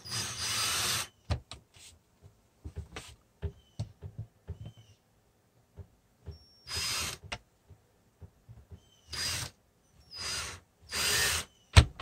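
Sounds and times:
cordless drill bursts: 0:00.0 - 0:01.2, 0:06.6 - 0:07.2, 0:09.1 - 0:11.5.

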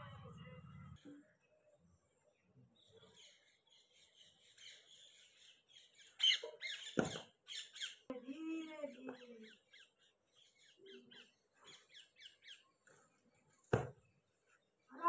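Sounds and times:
small birds chirping: 0:00.0 - 0:15.0
thump: 0:13.7 - 0:14.0.

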